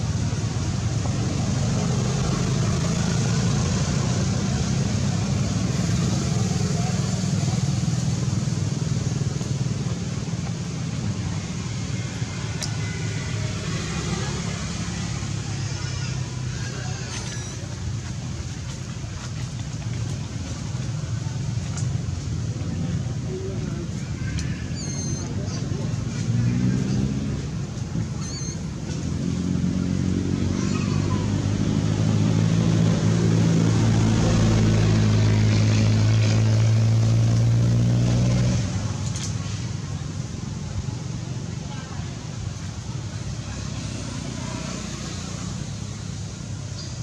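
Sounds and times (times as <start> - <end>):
low rumble and hiss: 0.0 - 47.0
faint high-pitched squeak: 17.0 - 17.7, 24.5 - 25.6.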